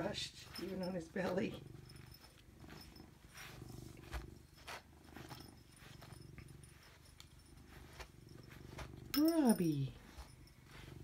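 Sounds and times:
brush swishing through fur: 0.0 - 11.0
cat purring: 0.0 - 11.0.

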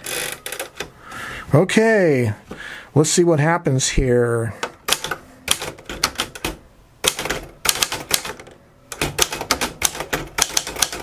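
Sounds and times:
typewriter keys striking: 4.9 - 11.0.

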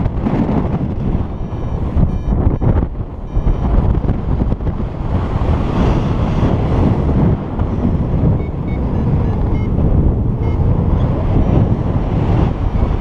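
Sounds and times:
wind buffeting microphone: 0.0 - 13.0
short electronic beeps: 1.0 - 4.1, 8.3 - 11.7.

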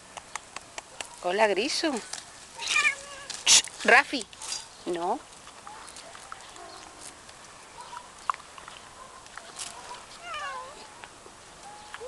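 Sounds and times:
cat meowing: 2.6 - 3.4, 10.2 - 10.9.

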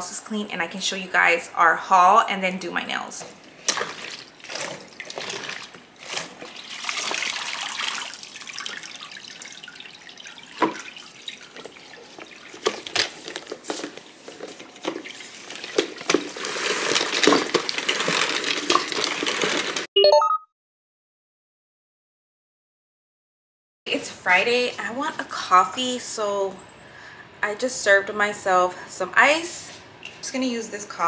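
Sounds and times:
water pouring into plastic bucket: 3.4 - 13.5, 14.7 - 19.9
short tone: 20.0 - 20.5.

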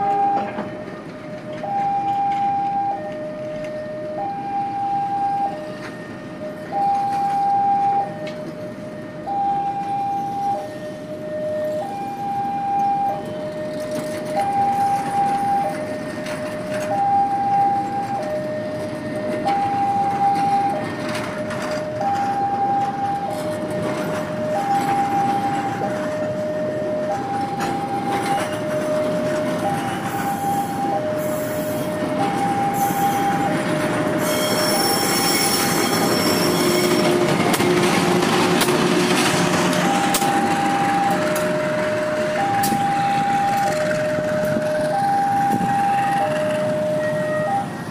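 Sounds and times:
level crossing two-tone alarm: 0.0 - 0.8, 1.5 - 47.9
diesel locomotive drone: 0.0 - 47.9
train coaches rumbling: 0.0 - 47.9
wheel squeal: 34.2 - 37.6.

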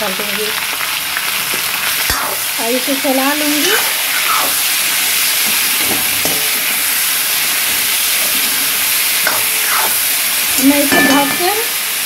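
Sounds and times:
food sizzling in hot oil: 0.0 - 12.0
ladle stirring in a pan: 3.2 - 11.6.

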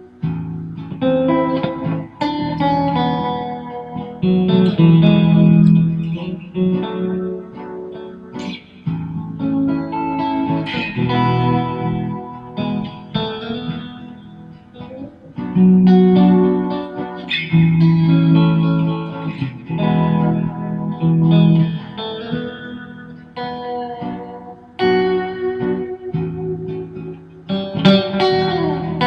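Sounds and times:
electric guitar picked notes: 0.0 - 29.0.

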